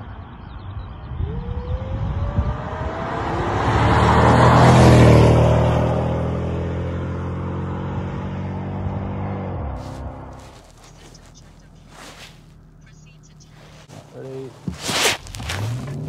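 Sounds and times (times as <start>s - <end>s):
supercharger whine: 0.1s - 3.4s
car accelerating past: 1.2s - 10.4s.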